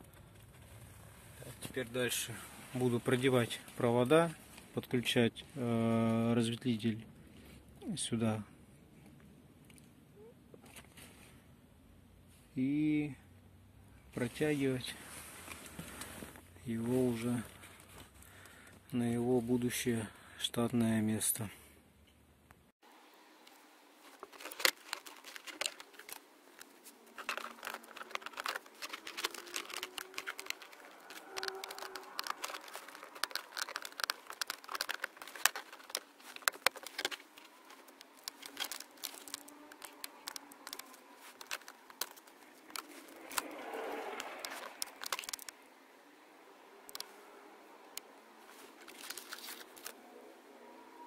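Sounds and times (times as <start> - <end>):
rustling: 14.2 - 18.8, 23.5 - 45.6, 48.0 - 50.2
scraping: 24.0 - 45.6
plastic creaks: 24.1 - 45.6, 46.9 - 47.1, 48.6 - 50.0
sharp plastic clicks: 24.3 - 45.6.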